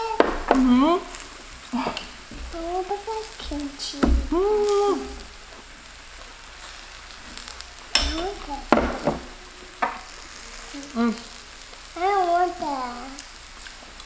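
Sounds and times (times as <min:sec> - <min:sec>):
person speaking: 0:00.0 - 0:05.3, 0:08.0 - 0:08.8, 0:10.7 - 0:11.4, 0:12.0 - 0:13.2
zucchini sizzling on griddle: 0:00.0 - 0:14.0.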